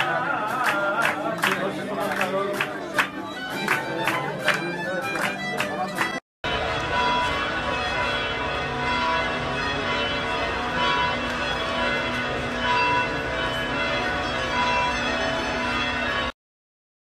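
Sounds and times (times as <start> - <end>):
church bells ringing: 6.4 - 16.4.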